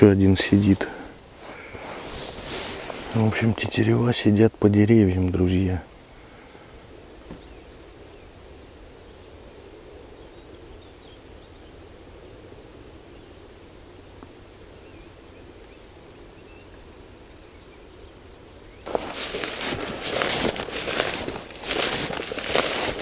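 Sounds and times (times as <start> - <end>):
footsteps crunching through dry grass: 0.0 - 3.5, 18.8 - 23.0
small bird calls: 7.3 - 12.1, 14.4 - 23.0.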